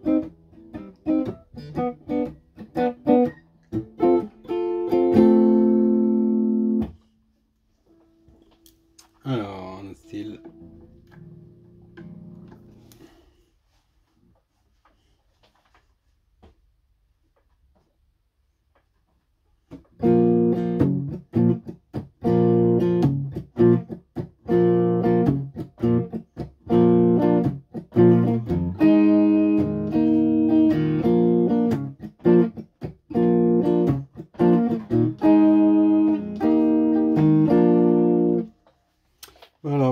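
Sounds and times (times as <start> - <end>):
electric guitar strumming chords: 0.0 - 7.0, 9.3 - 13.1, 20.0 - 38.5.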